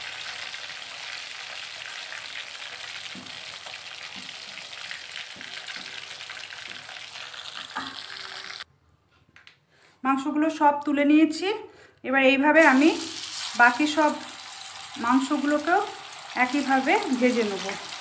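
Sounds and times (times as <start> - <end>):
chicken frying in hot oil: 0.0 - 8.7, 12.6 - 18.0.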